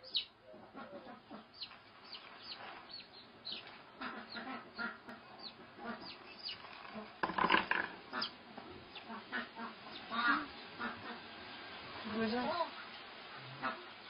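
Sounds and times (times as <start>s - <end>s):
chick peeping: 0.0s - 7.2s, 8.0s - 14.0s
rustling: 1.6s - 9.1s.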